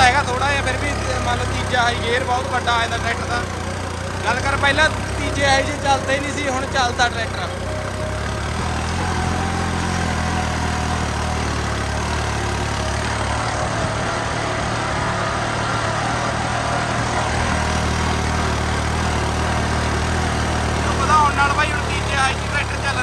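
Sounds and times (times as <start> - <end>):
tractor diesel engine running: 0.0 - 23.0.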